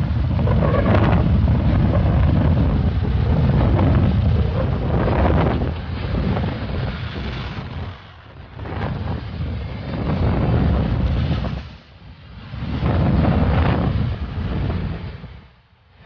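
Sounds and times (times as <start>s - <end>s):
road noise: 0.0s - 16.0s
wind buffeting microphone: 0.0s - 16.0s.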